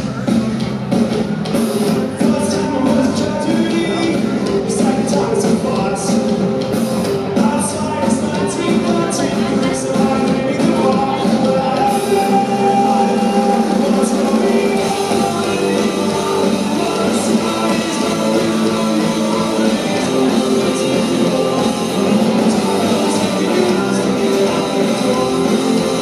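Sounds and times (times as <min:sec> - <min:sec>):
live rock band playing: 0:00.0 - 0:26.0
man singing: 0:02.2 - 0:26.0.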